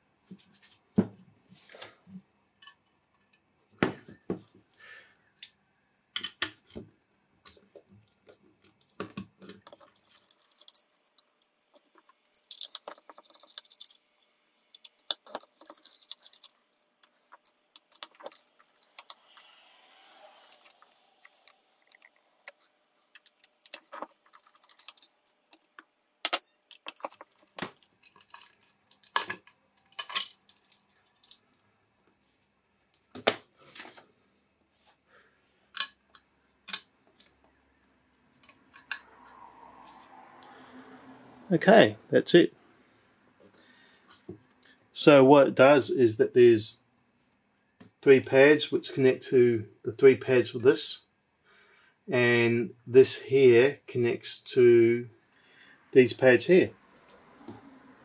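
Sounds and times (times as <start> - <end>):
metal screws clinking: 9.7 - 19.5
small screwdriver clicking and scraping: 9.7 - 19.8.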